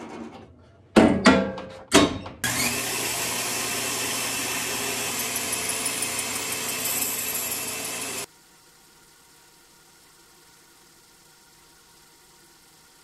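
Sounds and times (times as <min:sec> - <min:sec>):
bandsaw motor running: 0:02.4 - 0:08.3
saw blade cutting plywood: 0:02.4 - 0:08.3.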